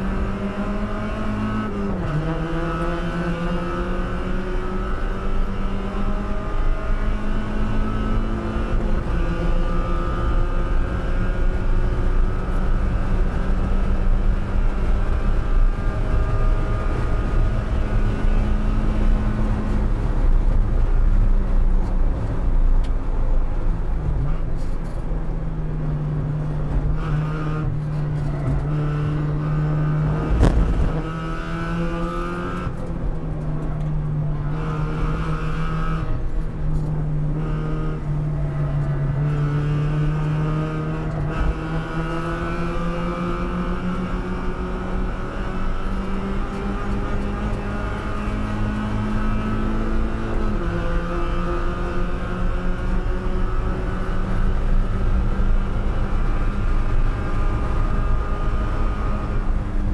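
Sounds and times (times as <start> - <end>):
race car engine accelerating: 0.0 - 59.9
sharp thump: 30.2 - 31.1.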